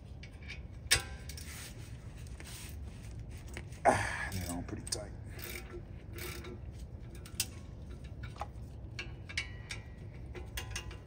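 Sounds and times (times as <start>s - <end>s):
ratchet clicking: 5.4s - 8.4s.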